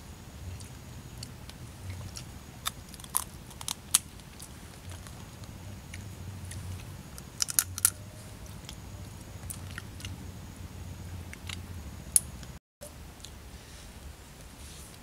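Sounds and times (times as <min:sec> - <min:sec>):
low steady hum: 0:00.0 - 0:15.0
crab shell cracking: 0:02.1 - 0:05.1, 0:07.4 - 0:07.9.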